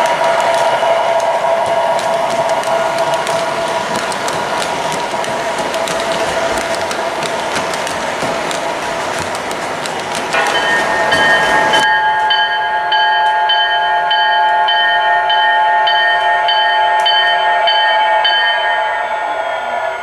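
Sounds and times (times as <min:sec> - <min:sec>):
wheels clicking over track joints: 0:00.0 - 0:11.9
model locomotive drone: 0:00.0 - 0:20.0.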